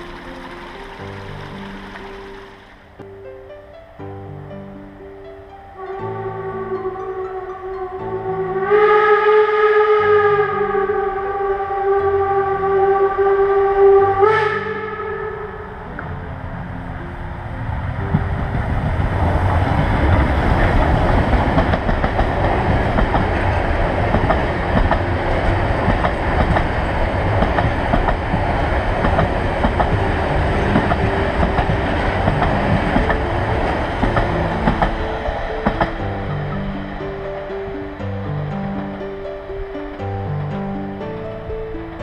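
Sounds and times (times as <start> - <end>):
train wheels and coaches clattering: 0.0 - 3.0, 17.0 - 42.0
train rumble: 0.0 - 3.9, 5.2 - 42.0
steam train whistle: 5.8 - 15.9.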